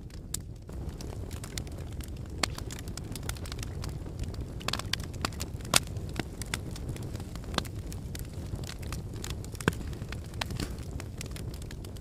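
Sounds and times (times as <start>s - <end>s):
low rumble of flames: 0.0s - 12.0s
wood fire crackling and popping: 0.0s - 12.0s.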